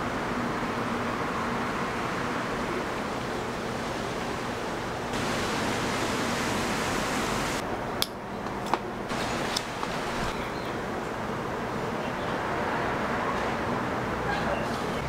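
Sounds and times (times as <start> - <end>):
steady background hiss: 0.0 - 8.3, 8.9 - 12.2.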